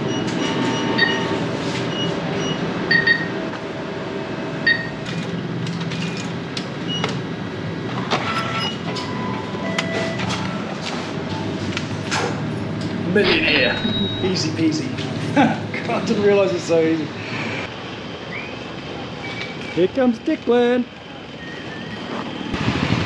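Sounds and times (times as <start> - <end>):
keypad beeping: 0.1 - 1.3, 2.0 - 3.3, 8.9 - 10.6, 13.3 - 14.5.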